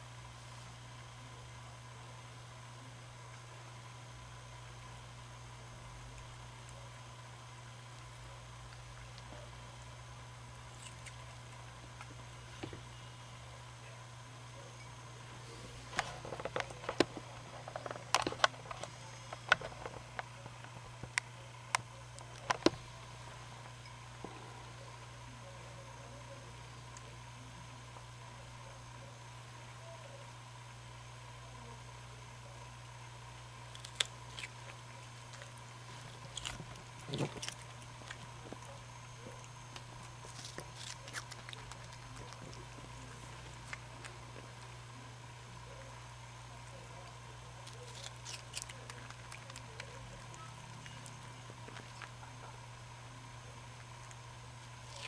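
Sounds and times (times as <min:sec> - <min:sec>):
steady low hum: 0:00.0 - 0:55.0
lemur chewing: 0:02.8 - 0:30.3, 0:32.4 - 0:55.0
animal chewing and licking: 0:33.6 - 0:46.0, 0:46.8 - 0:55.0.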